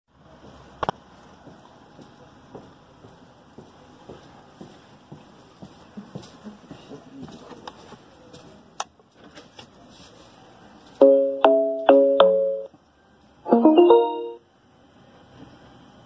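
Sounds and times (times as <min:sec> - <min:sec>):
piano-like start-up notes: 0:11.0 - 0:12.7, 0:13.5 - 0:14.5.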